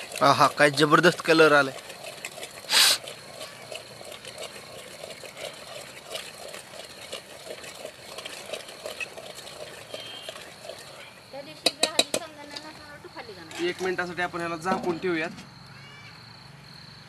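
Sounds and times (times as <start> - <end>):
spices sizzling in oil: 0.0 - 14.0
metal spoon scraping pot: 0.0 - 15.0
loud hiss burst: 2.7 - 3.0.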